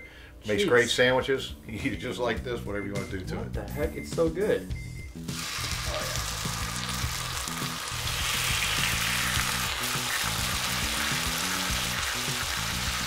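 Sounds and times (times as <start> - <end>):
background music: 0.0 - 13.0
fish sizzling in hot oil: 5.3 - 13.0.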